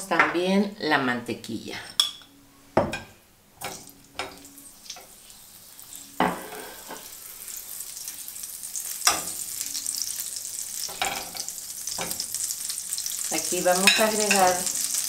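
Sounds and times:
butter sizzling in a frying pan: 3.7s - 15.0s.

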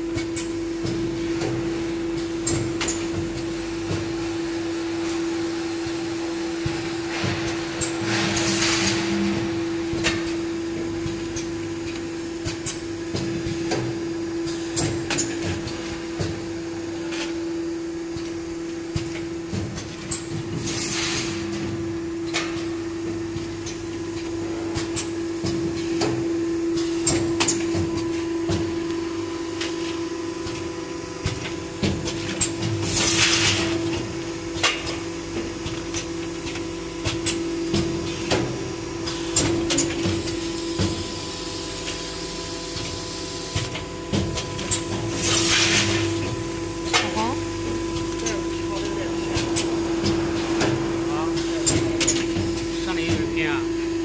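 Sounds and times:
packing machine humming: 0.0s - 54.0s
loud hiss of air: 7.1s - 9.5s, 20.6s - 21.5s.

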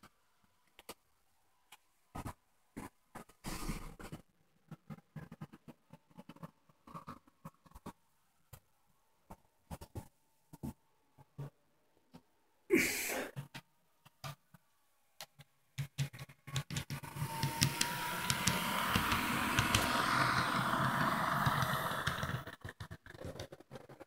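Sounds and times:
scattered clicks: 15.2s - 24.0s
model train motor whirring: 17.0s - 23.1s
wheels rattling on rails: 17.0s - 23.4s.

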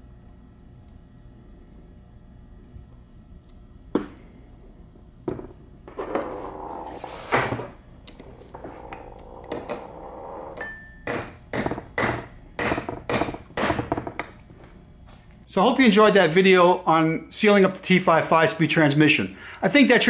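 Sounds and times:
hammer tapping metal: 10.6s - 13.9s.

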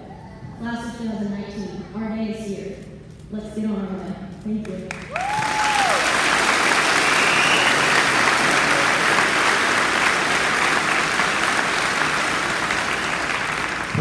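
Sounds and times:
audience applauding: 4.9s - 14.0s
person whooping: 5.1s - 6.1s.

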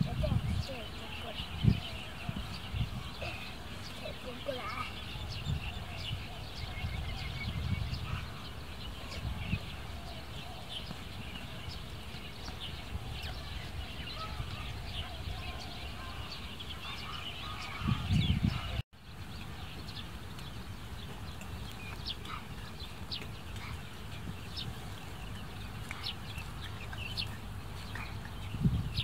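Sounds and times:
small birds chirping: 0.0s - 29.0s.

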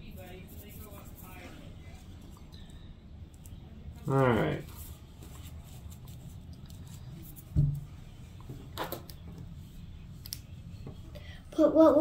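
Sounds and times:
low room hum: 0.0s - 12.0s
soft thump: 7.5s - 7.9s.

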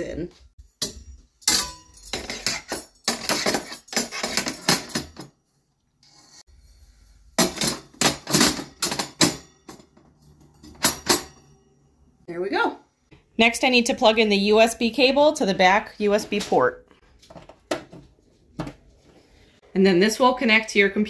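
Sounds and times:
metal grates clinking and clattering: 0.8s - 5.3s, 7.4s - 11.5s.

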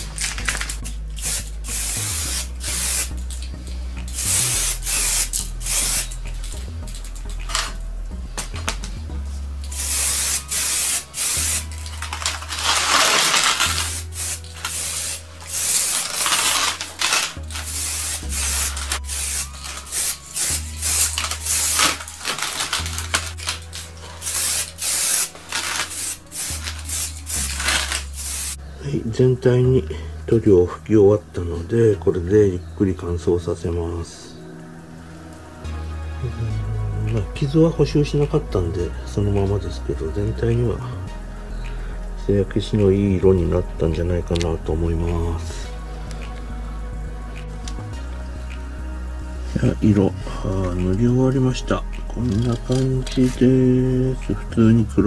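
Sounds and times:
aerosol spray can hissing: 0.0s - 7.8s, 9.6s - 28.6s.

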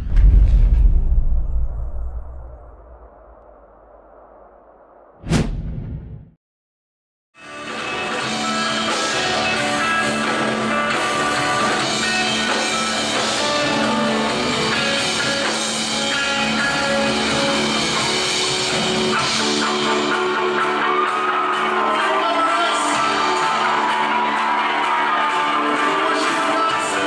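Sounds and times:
electric guitar: 7.4s - 27.0s
drum kit: 7.5s - 27.0s.

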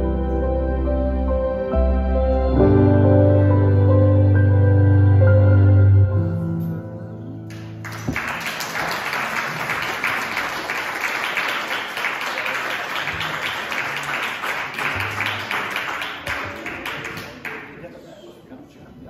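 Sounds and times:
audience applauding: 7.5s - 18.0s.

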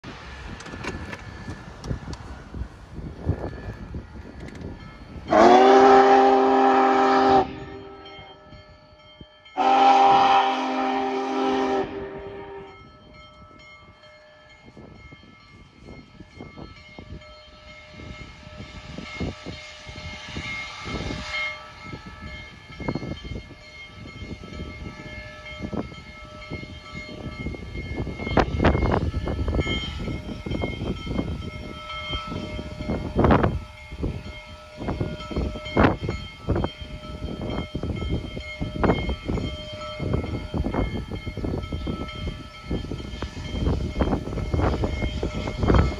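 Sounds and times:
steam locomotive exhaust chuffing: 0.0s - 14.0s, 15.6s - 45.9s
steam whistle blast: 5.3s - 8.1s, 9.6s - 12.8s.

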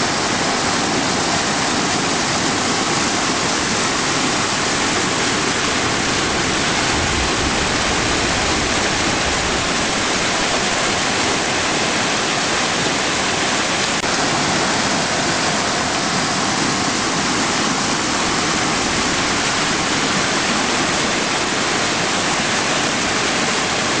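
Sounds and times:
brook rushing over rocks: 0.0s - 24.0s.

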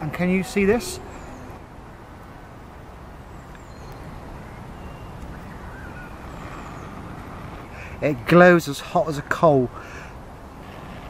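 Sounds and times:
faint bird call: 0.4s - 1.7s.

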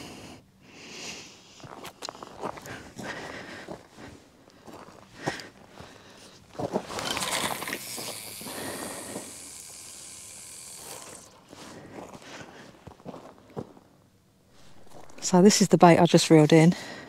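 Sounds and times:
fishing reel whirring: 6.9s - 11.5s.

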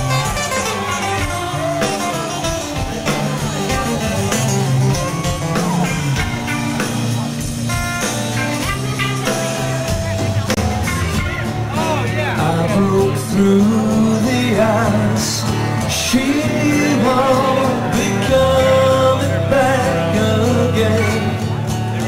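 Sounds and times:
live rock band: 0.0s - 22.0s.

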